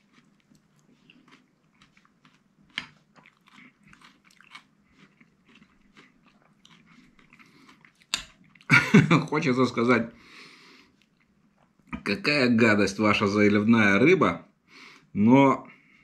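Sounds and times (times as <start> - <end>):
soft chewing: 0.0 - 8.8, 10.1 - 12.1.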